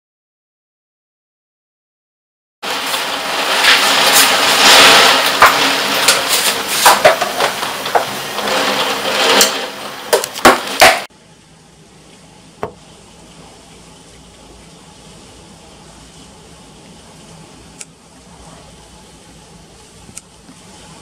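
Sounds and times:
rain knocking on window: 2.6s - 11.1s
torrential rain: 2.6s - 21.0s.

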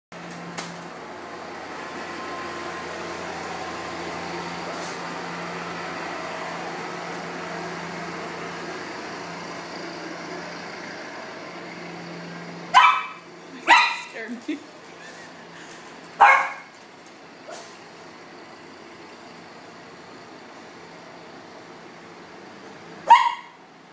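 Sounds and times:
low mechanical hum: 0.2s - 23.9s
dog barking: 12.7s - 14.1s, 16.2s - 16.7s, 23.0s - 23.6s.

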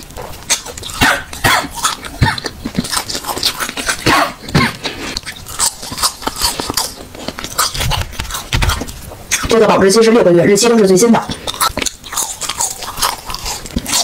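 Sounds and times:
woman clearing throat: 4.0s - 4.9s
woman coughing: 4.0s - 4.9s.

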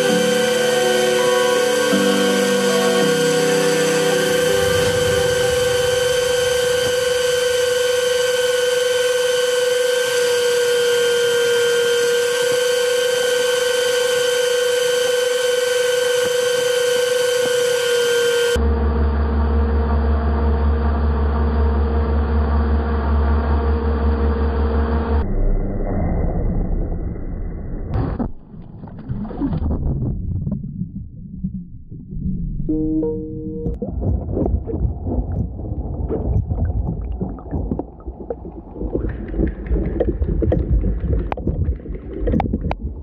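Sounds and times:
low rumble: 0.0s - 8.6s, 18.6s - 43.0s
water noise: 0.0s - 18.6s, 28.0s - 43.0s
model boat motor whine: 0.0s - 25.2s.

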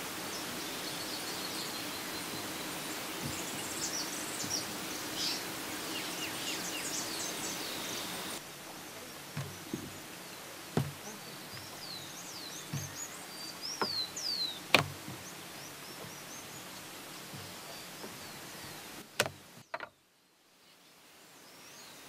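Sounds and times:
small birds chirping: 0.0s - 22.0s
steady outdoor hiss: 0.0s - 22.0s
rolling pin knocking on table: 10.8s - 11.0s, 14.7s - 15.1s.

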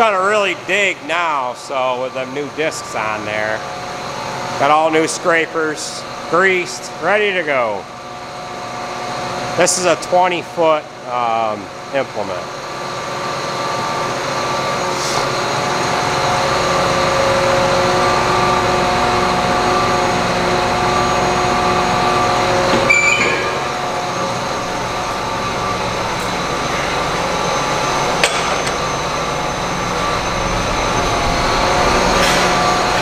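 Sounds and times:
steady whine: 0.0s - 33.0s
tractor diesel engine running: 13.7s - 33.0s
metallic clanks: 28.1s - 28.9s.

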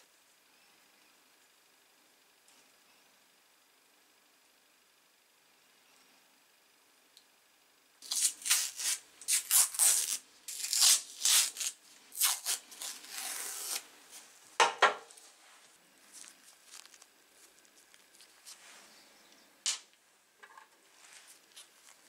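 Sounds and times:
masking tape tearing: 8.0s - 13.9s
faint handling noise: 14.1s - 22.0s.

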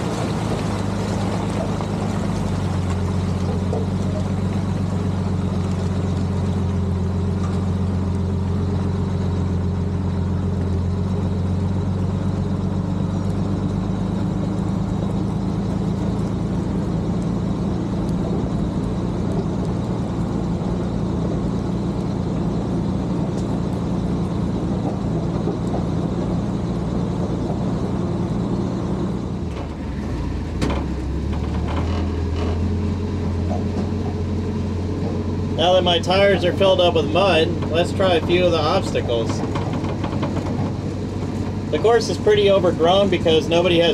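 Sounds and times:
truck engine running: 0.0s - 43.9s
sharp knocks: 39.3s - 41.6s.

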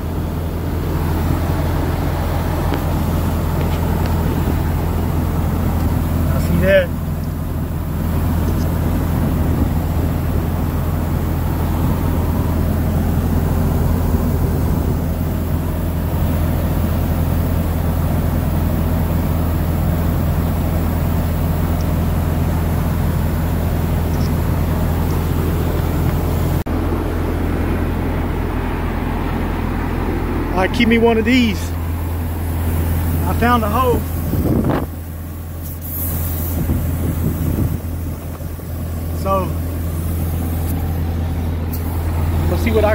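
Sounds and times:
low engine hum: 0.0s - 42.9s
compressed air hissing: 34.0s - 39.0s, 39.6s - 42.2s.

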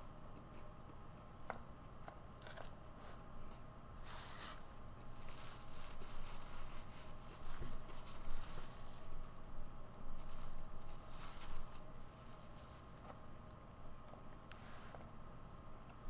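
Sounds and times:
paper napkin rustling: 4.0s - 9.4s, 10.0s - 13.0s.

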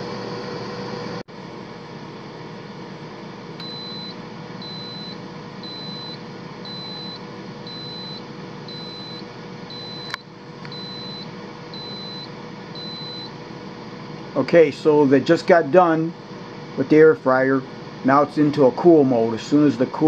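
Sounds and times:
fan whirring: 0.0s - 20.0s
appliance beeping: 3.6s - 13.6s.

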